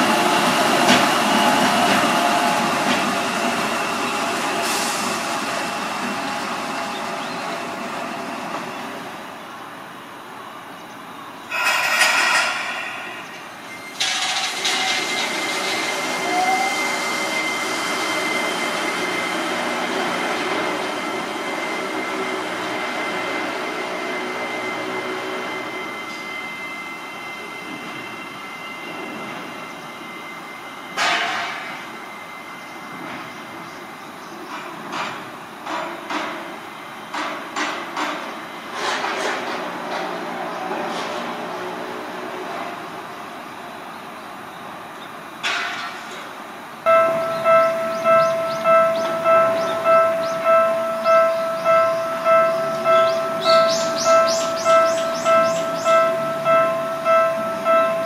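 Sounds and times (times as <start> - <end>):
people mover train running: 0.0 - 58.0
steady high tone: 46.9 - 58.0.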